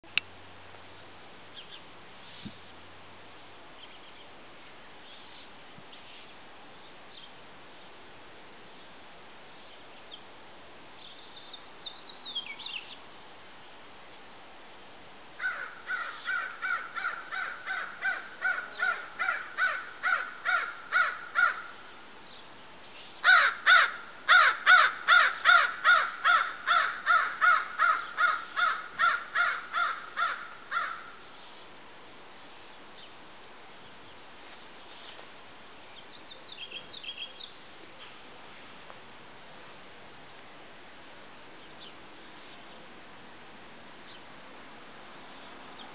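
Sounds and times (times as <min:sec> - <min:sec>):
crow cawing: 0:15.4 - 0:21.8, 0:23.2 - 0:31.2.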